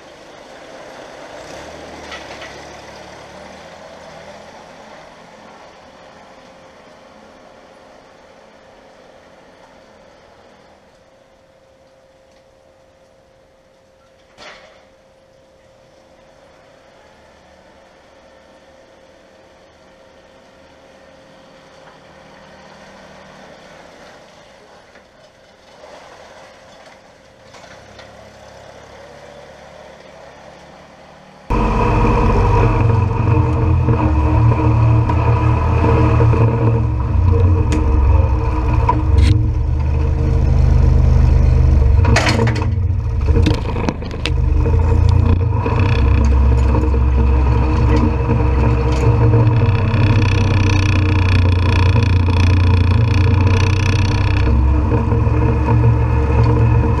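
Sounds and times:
tractor diesel engine running: 31.5 - 57.0
tractor scraping slurry: 31.5 - 57.0.

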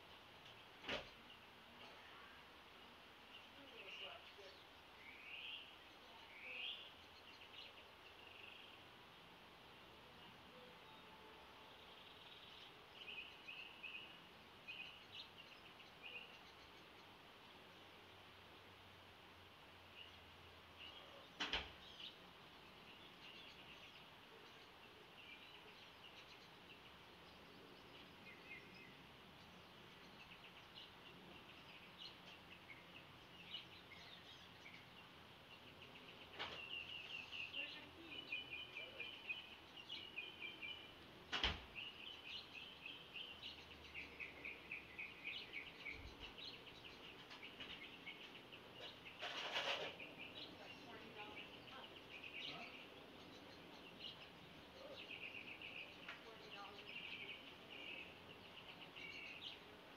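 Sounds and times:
songbirds chirping and trilling: 0.0 - 59.9.

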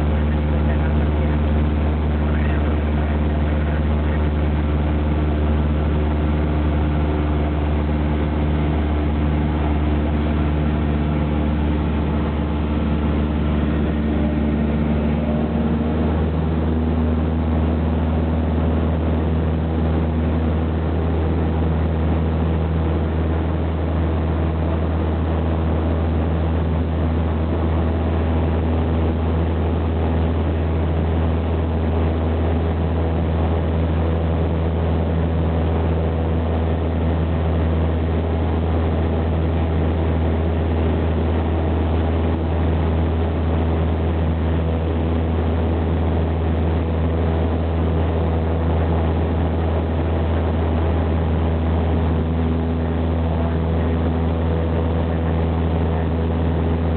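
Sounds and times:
propeller plane engine drone: 0.0 - 56.9.

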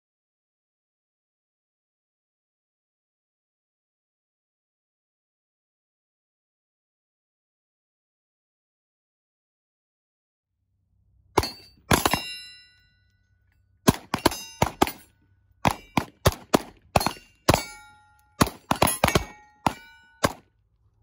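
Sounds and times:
pistol shots: 11.4 - 12.4, 13.8 - 20.4
steel targets clanging: 11.4 - 13.1, 13.8 - 20.4.

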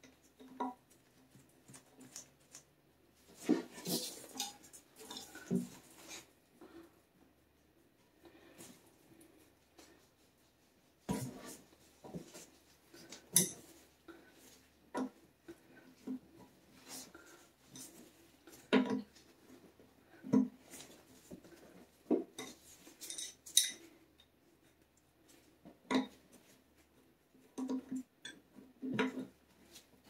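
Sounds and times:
metal tools clinking: 23.0 - 23.9.

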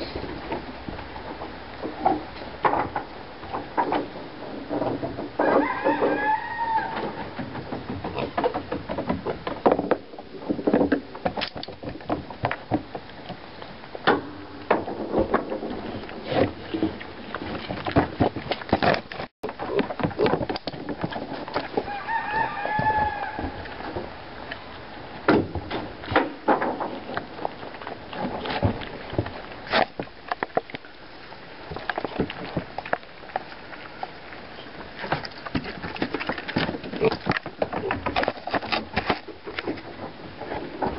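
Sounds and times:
hooves clicking on wooden deck: 0.0 - 40.9
pig call: 5.4 - 7.0.

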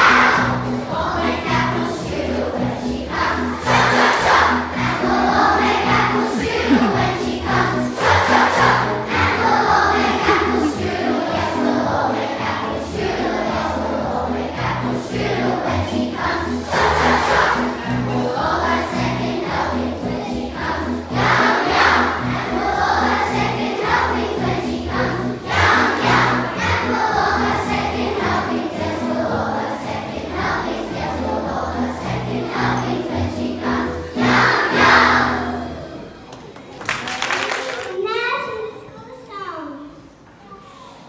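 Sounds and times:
instrumental accompaniment with bass: 0.0 - 29.3
group of voices singing: 0.0 - 35.8.

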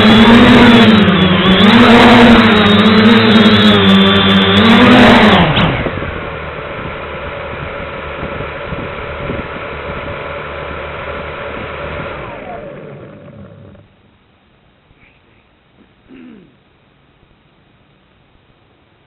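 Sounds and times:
drone motors whining: 0.0 - 14.0.

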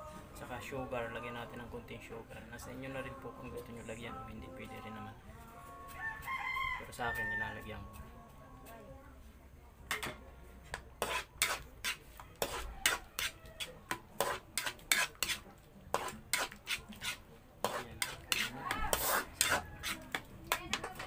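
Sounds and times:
metal spoon scraping a wok: 11.0 - 21.0.

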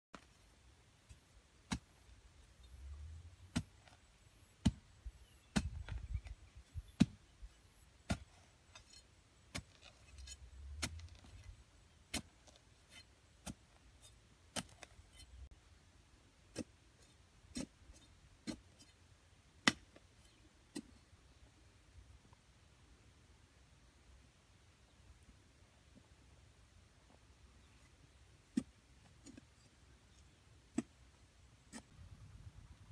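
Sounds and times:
hand tool knocking into dry soil: 1.1 - 2.1, 3.4 - 7.3, 8.0 - 8.9, 9.5 - 13.8, 14.5 - 15.0, 19.6 - 20.0, 28.5 - 29.5, 30.7 - 31.0.

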